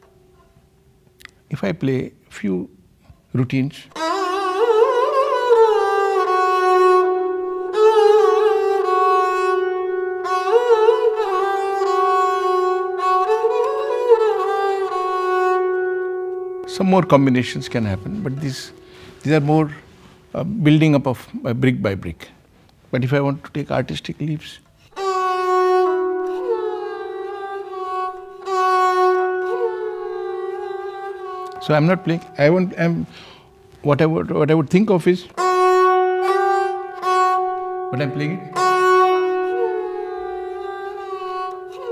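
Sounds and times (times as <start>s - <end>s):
bowed lute playing: 4.0s - 20.4s, 24.8s - 33.9s, 35.3s - 41.9s.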